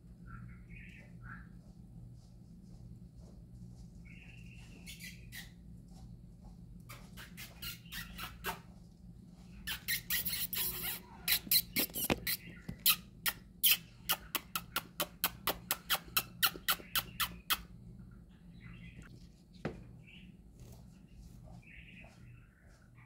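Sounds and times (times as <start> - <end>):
budgerigars clicking: 6.9 - 8.6, 9.6 - 17.7
scratchy noise: 9.6 - 13.0.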